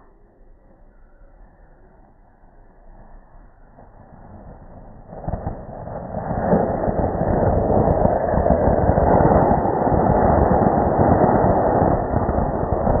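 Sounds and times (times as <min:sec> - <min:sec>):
fountain firework hissing: 0:03.8 - 0:13.0.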